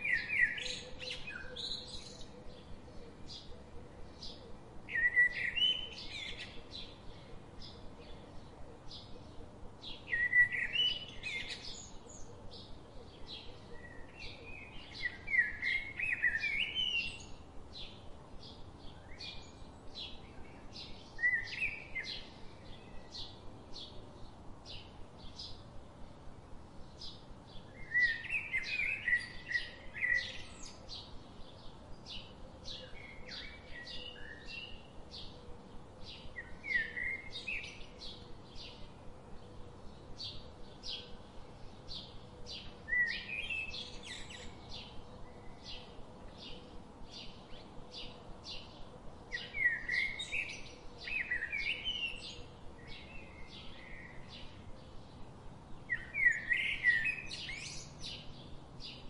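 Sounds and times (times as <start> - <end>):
bird warbling song: 0.0 - 25.6, 26.8 - 59.0
birds chirping: 26.7 - 59.0.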